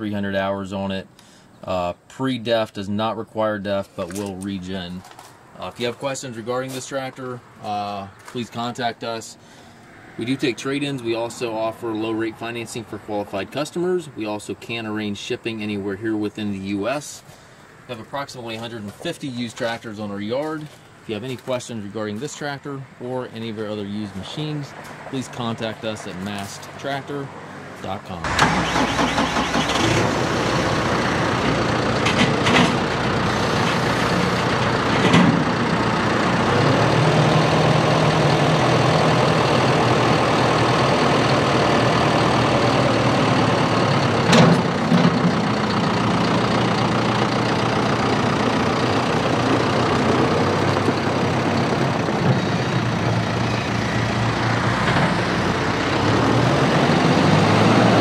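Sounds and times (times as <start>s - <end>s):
tractor diesel engine running: 28.2s - 58.0s.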